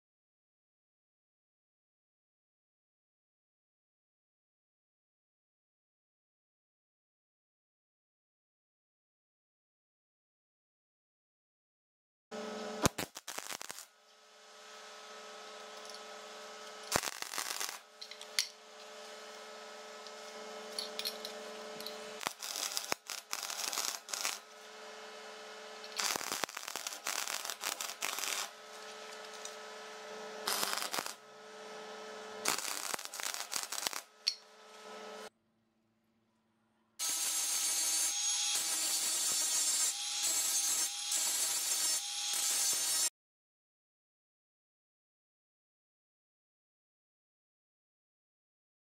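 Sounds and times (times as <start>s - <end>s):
angle grinder grinding steel: 12.4s - 13.8s, 14.7s - 35.3s, 37.0s - 43.1s
steady hum: 12.4s - 35.3s
welding arc crackling: 12.4s - 35.3s, 37.0s - 43.1s.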